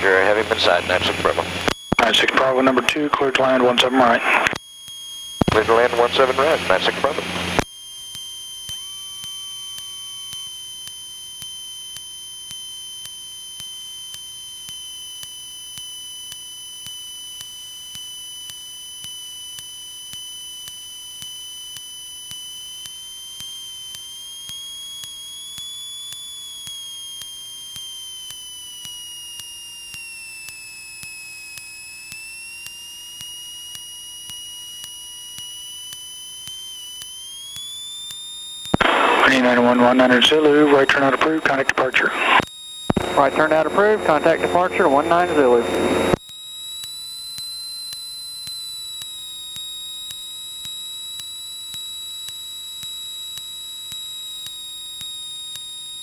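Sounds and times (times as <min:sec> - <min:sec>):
faint aircraft engine: 0:00.0 - 0:34.9, 0:38.9 - 0:46.2
high-pitched electrical whine: 0:00.0 - 0:56.0.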